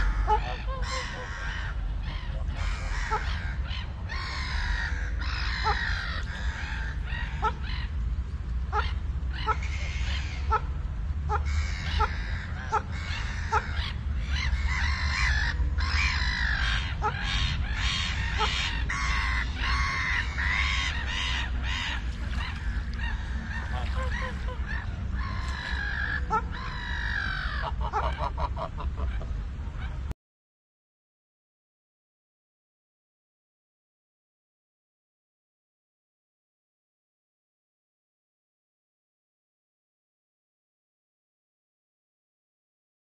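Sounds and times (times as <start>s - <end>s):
waterfowl honking and quacking: 0.0s - 8.0s, 8.7s - 30.0s
steady low rumble: 0.0s - 30.1s.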